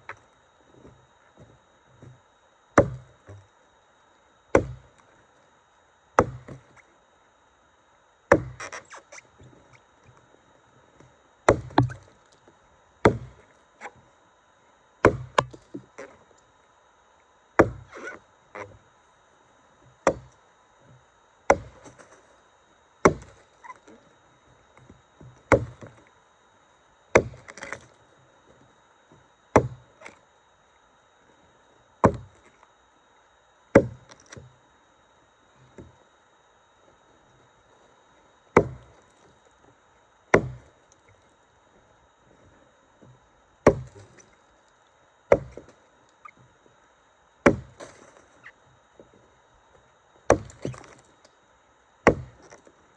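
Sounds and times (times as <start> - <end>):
axe chopping into log: 2.8 - 3.1, 4.5 - 4.9, 6.2 - 6.6, 8.3 - 8.8, 11.5 - 12.0, 13.0 - 13.4, 15.0 - 15.6, 17.6 - 18.2, 20.0 - 20.3, 21.5 - 22.0, 23.1 - 23.4, 25.5 - 25.9, 27.2 - 27.8, 29.6 - 29.8, 32.0 - 32.3, 33.8 - 34.0, 38.6 - 38.9, 40.4 - 40.7, 43.6 - 44.0, 45.3 - 45.7, 47.4 - 48.1, 50.3 - 51.0, 52.1 - 52.4.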